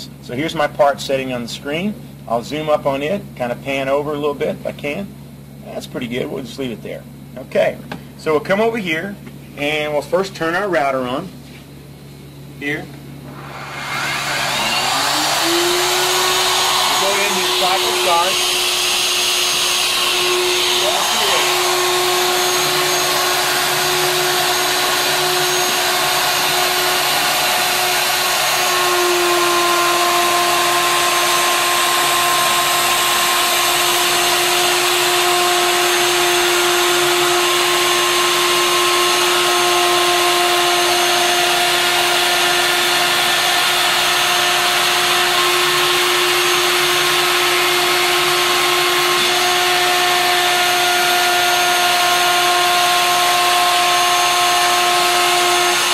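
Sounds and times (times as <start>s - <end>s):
router spindle whining: 13.3s - 55.9s.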